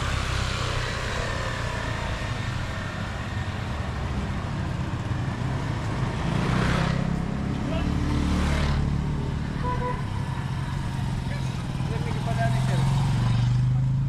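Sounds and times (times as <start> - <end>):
low rumble of street noise: 0.0 - 14.0
motorcycles passing: 0.0 - 14.0.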